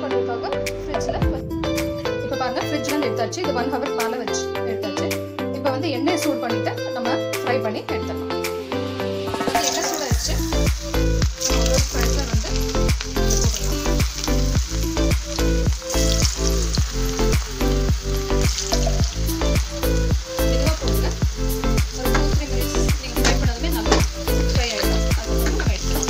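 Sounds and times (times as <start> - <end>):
potatoes deep-frying in oil: 9.2 - 26.0.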